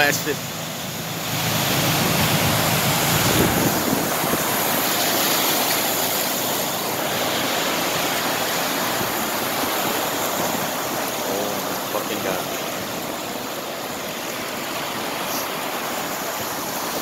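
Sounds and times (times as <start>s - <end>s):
truck engine: 0.0s - 8.7s
floodwater rushing and splashing: 0.0s - 17.0s.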